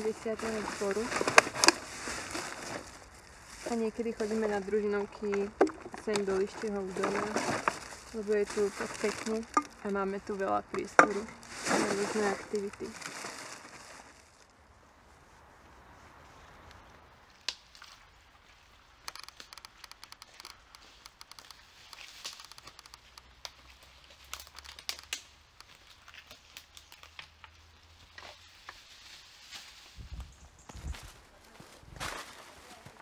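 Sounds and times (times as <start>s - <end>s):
plastic bottles and bags crinkling: 0.0s - 14.5s, 19.0s - 29.0s.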